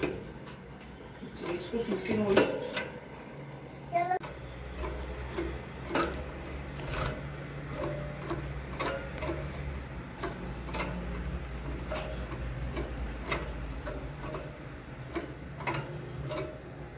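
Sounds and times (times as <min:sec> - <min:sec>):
bird feet tapping on perch: 0:04.3 - 0:16.9.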